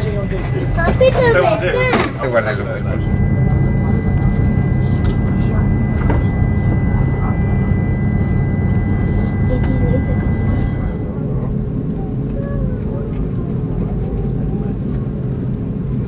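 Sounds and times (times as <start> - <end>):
thin steady whine: 0.0 - 11.8
aircraft cabin low rumble: 0.0 - 15.5.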